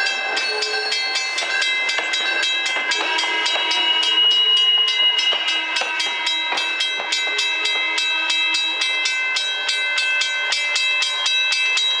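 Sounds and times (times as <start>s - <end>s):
train wheels squealing on track: 0.0s - 9.8s
regular rail clicking: 0.0s - 12.0s.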